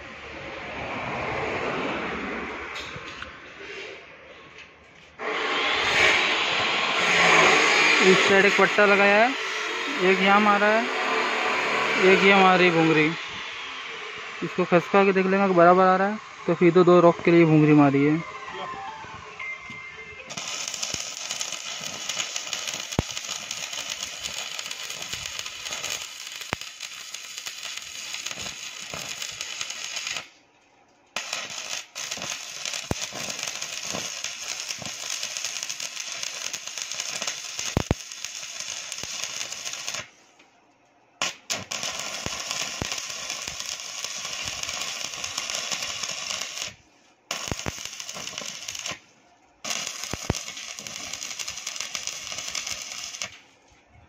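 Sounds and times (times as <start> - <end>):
welding arc crackling: 5.2 - 13.2, 20.2 - 30.4, 31.2 - 40.2, 41.2 - 49.0, 49.6 - 53.5.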